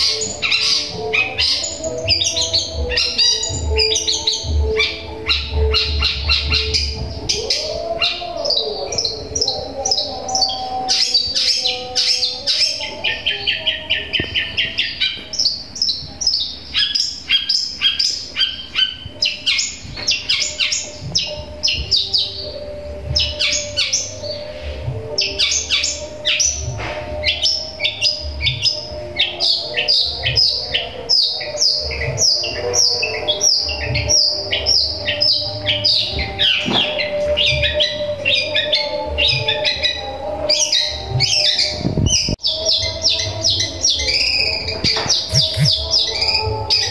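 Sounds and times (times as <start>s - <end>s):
bird singing rapid sharp chirps: 0.0s - 46.9s.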